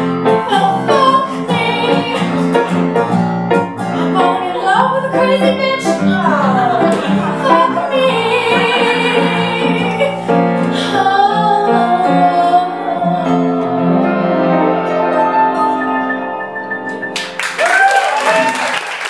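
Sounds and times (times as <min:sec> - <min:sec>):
piano accompaniment: 0:00.0 - 0:18.7
woman singing: 0:00.3 - 0:02.4, 0:04.0 - 0:14.2.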